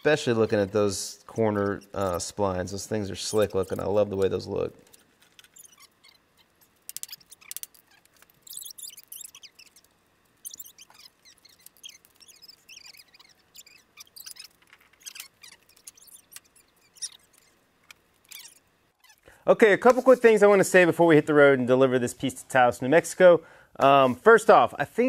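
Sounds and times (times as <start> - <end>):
short high squeaks: 4.9 - 19.3.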